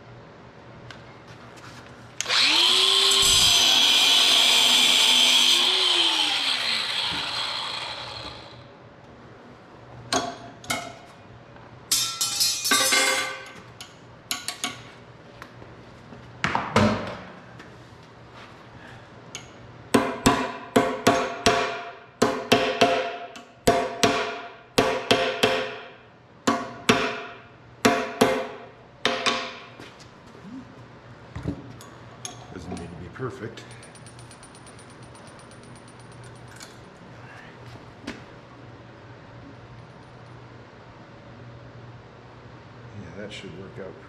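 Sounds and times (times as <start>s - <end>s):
hammer striking steel rod: 20.0s - 25.9s, 26.5s - 29.6s.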